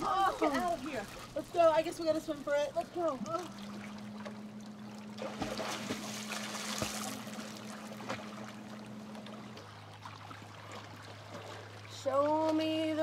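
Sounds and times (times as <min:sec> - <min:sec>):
steady low hum: 0:00.0 - 0:13.0
water splashing and sloshing: 0:00.0 - 0:13.0.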